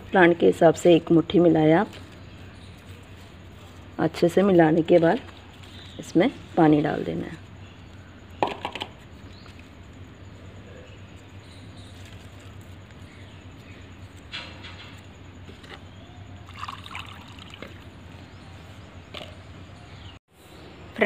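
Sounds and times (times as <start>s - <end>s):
water trickling into soil: 16.4s - 17.9s.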